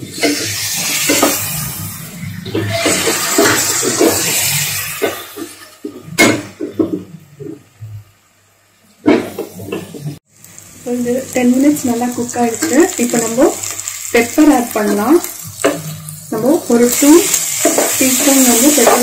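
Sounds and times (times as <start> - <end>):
stock hissing in hot oil: 0.0 - 5.5, 10.2 - 19.0.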